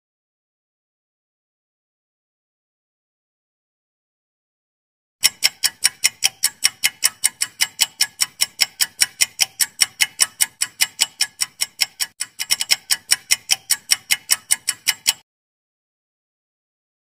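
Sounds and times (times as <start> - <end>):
high-pitched clock ticks: 5.2 - 15.2.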